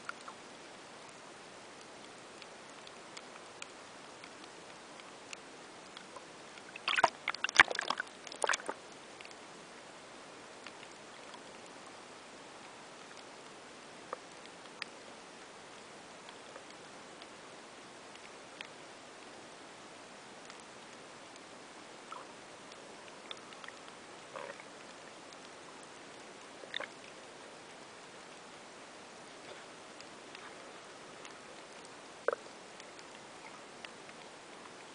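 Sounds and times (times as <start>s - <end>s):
faint clicks: 0.0s - 0.4s, 1.0s - 9.4s, 10.6s - 12.0s, 12.6s - 15.1s, 15.7s - 17.4s, 18.1s - 19.4s, 20.4s - 28.5s, 29.2s - 34.9s
soft ticks: 0.0s - 0.4s, 1.0s - 9.4s, 10.6s - 12.0s, 12.6s - 15.1s, 15.7s - 17.4s, 18.1s - 19.4s, 20.4s - 21.5s, 22.1s - 28.5s, 29.2s - 34.9s
faint steady hiss: 0.0s - 34.9s
underwater clicks and crunches: 1.8s - 9.4s.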